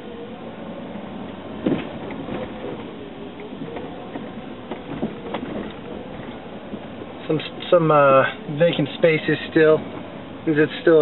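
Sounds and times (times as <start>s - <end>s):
car engine and road hum: 0.0s - 11.0s.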